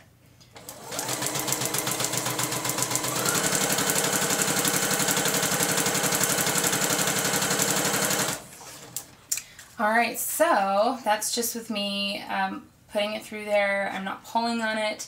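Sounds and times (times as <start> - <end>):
sewing machine stitching: 0.6 - 9.1.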